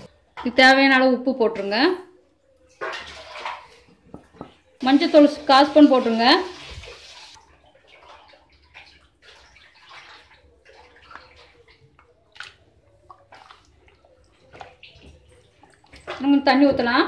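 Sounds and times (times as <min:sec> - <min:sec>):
hand squelching through wet paste: 0:08.1 - 0:16.2.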